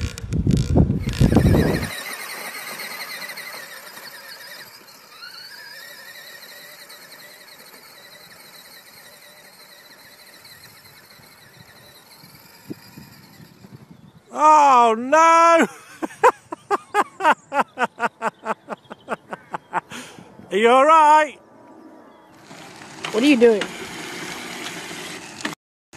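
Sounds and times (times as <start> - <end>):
mini motorbike motor whine: 0.0 - 14.4, 22.3 - 25.6.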